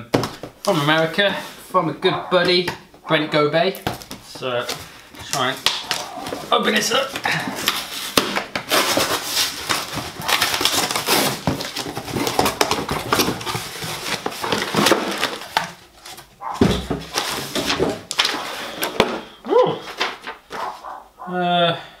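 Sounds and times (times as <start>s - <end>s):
cardboard and paper rustling: 3.8s - 21.0s
packing tape ripping: 7.6s - 15.8s.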